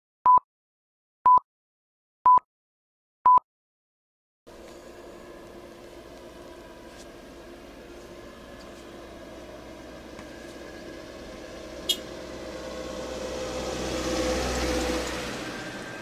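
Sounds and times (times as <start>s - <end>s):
car driving past: 4.5s - 16.0s.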